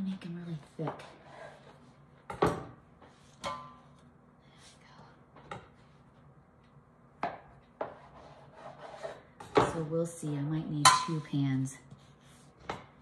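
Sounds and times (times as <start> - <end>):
metal pan ringing: 10.8 - 11.3.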